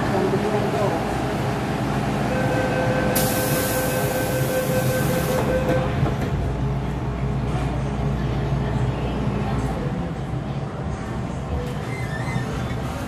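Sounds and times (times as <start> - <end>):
train rumble: 0.0 - 13.0
two-pitch door warning tone: 2.3 - 6.0.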